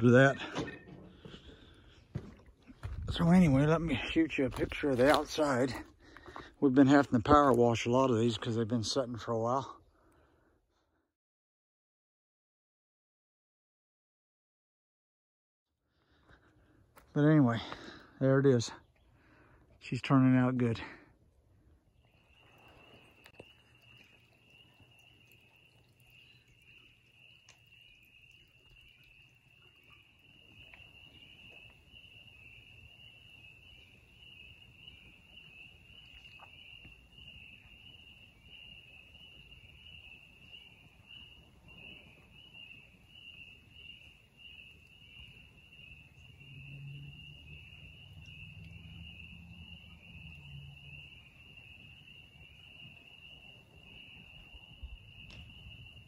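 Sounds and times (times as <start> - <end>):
insects chorus: 22.0 - 56.0.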